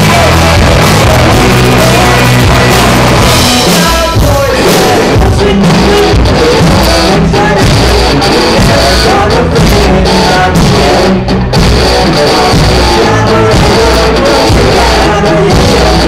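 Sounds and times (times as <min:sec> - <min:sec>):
drum kit: 0:00.0 - 0:16.0
electric guitars: 0:00.0 - 0:16.0
sung vocal: 0:00.0 - 0:16.0.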